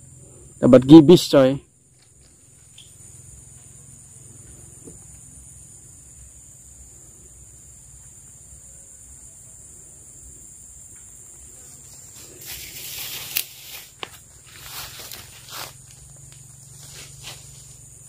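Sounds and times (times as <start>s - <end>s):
high-pitched insect chorus: 0.0s - 18.0s
rustling: 11.3s - 18.0s.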